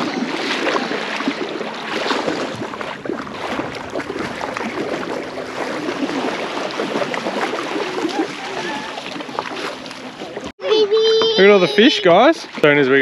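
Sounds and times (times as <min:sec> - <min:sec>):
seawater lapping and sloshing: 0:00.0 - 0:13.0
small water splashes: 0:00.0 - 0:13.0.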